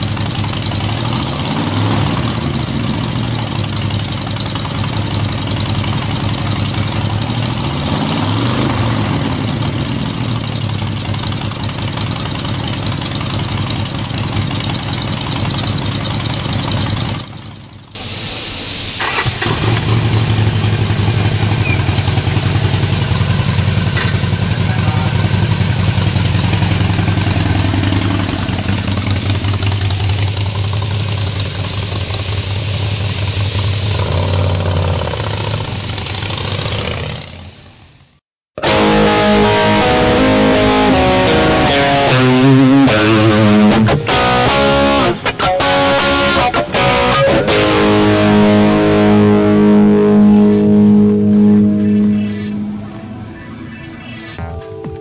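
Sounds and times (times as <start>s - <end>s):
motorcycle idling: 0.0s - 18.3s, 19.0s - 55.0s
guitar-led music: 38.6s - 55.0s.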